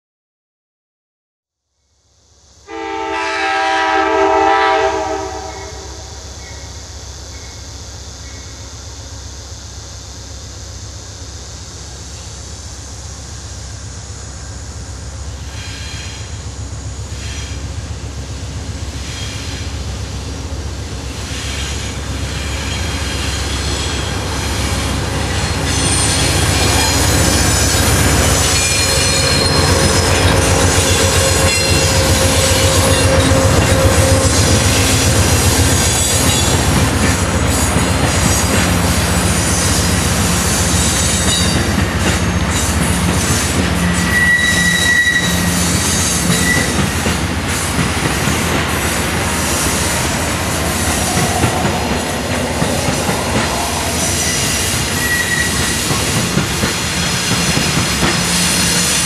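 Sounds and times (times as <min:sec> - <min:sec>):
train engine and wheels: 0:02.0 - 0:59.0.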